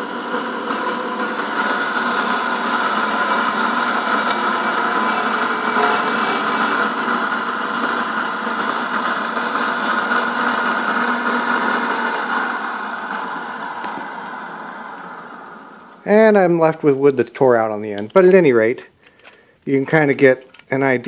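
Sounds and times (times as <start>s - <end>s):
milling machine cutting wood: 0.0s - 16.4s.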